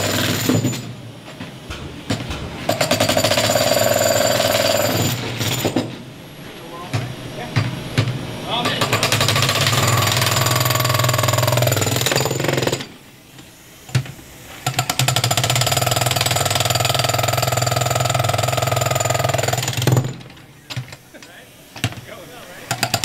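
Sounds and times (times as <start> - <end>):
breaker hammering into concrete: 1.7 - 5.9, 6.9 - 13.0, 14.6 - 20.8, 22.7 - 23.0.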